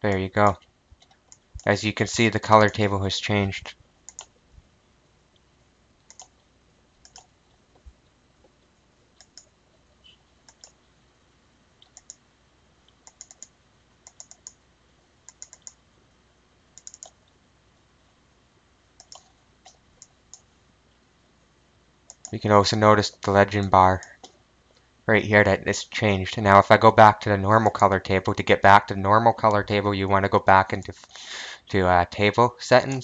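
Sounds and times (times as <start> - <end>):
faint room hiss: 0.0 - 33.0
computer mouse clicking: 1.0 - 1.7, 4.1 - 4.4, 6.0 - 7.3, 9.2 - 9.5, 10.5 - 10.8, 11.8 - 12.2, 12.9 - 14.6, 15.3 - 15.8, 16.8 - 17.3, 19.0 - 20.5, 22.1 - 22.4.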